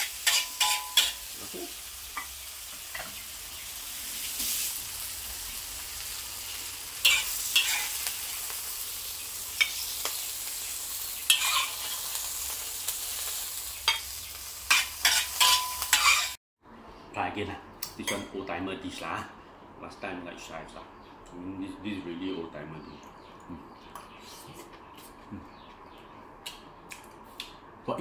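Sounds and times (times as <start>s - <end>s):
metal spatula scraping and knocking wok: 0.0s - 1.4s, 7.0s - 8.1s, 11.3s - 12.1s, 13.9s - 16.4s
food sizzling in a wok: 0.0s - 16.4s.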